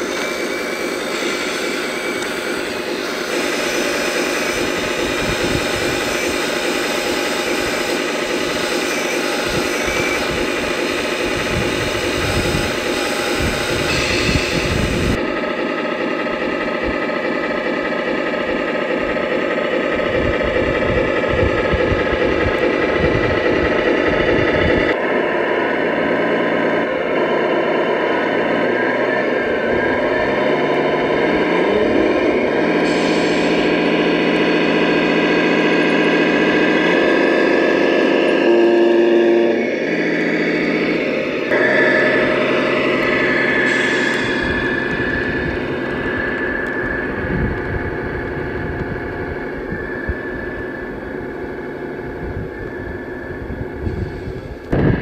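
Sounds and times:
model vehicles mechanical whine: 0.0 - 55.0.

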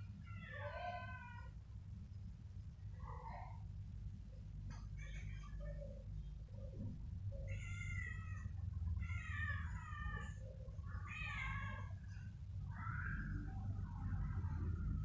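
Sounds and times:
steady low rumble: 5.8 - 15.0
cat meowing: 7.4 - 10.4, 11.0 - 12.0.

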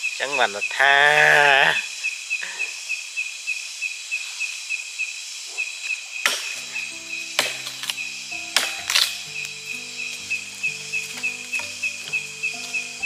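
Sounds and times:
hiss of insect noise: 0.0 - 13.0
insect chirping: 0.0 - 13.0
low background music: 6.5 - 13.0.

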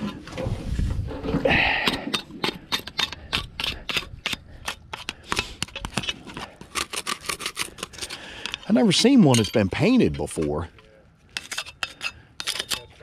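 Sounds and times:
plastic scraper rasping on steel: 2.4 - 8.6.

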